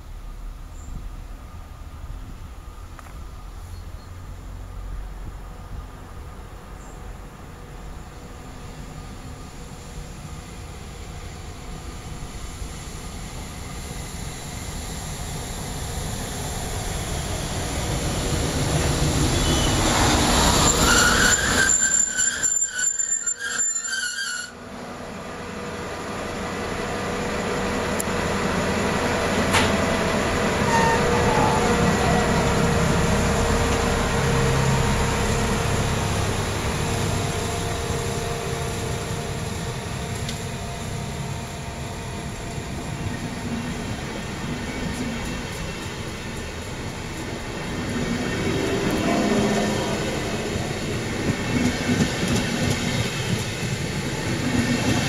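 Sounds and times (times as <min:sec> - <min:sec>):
train wheels rumbling on rails: 0:00.0 - 0:55.0
high-pitched wheel squeals: 0:19.3 - 0:24.6, 0:30.6 - 0:31.7.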